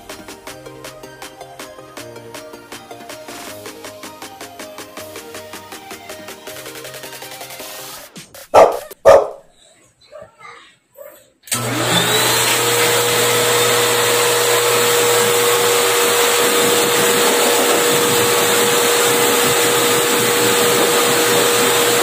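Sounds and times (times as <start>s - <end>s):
pet dryer blower rushing air: 11.5s - 22.0s.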